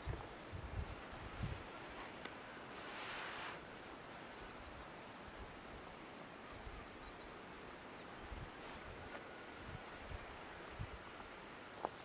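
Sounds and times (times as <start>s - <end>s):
wind rumble on microphone: 0.0s - 2.2s, 8.2s - 12.0s
low hiss of outdoor air: 0.0s - 12.0s.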